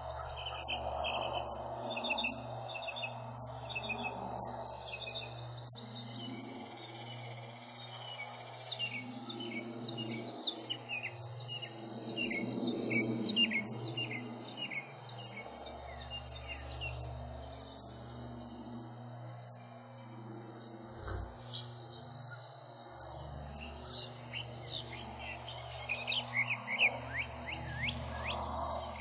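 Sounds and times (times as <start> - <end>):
insects pulsing: 0.0 - 29.0
bird chirping: 20.7 - 29.0.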